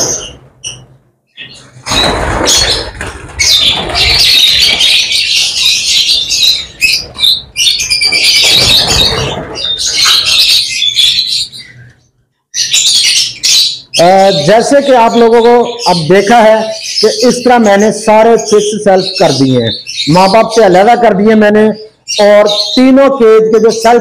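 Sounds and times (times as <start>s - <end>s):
birds squawking and chattering: 0.0s - 24.0s
wing flutters: 1.7s - 5.3s, 6.8s - 10.4s.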